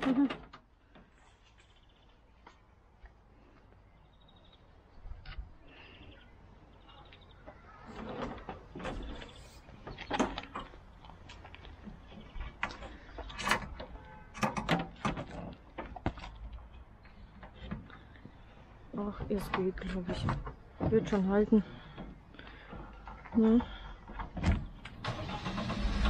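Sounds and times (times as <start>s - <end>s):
knocks and clanks: 11.9s - 16.2s.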